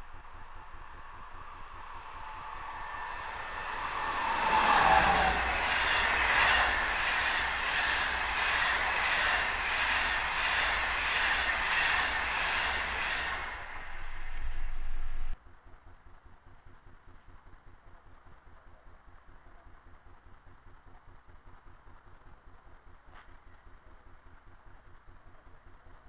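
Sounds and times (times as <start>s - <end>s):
electric train passing: 0.0s - 15.4s
locomotive falling whine: 0.0s - 15.4s
train wheels clattering: 1.4s - 14.8s.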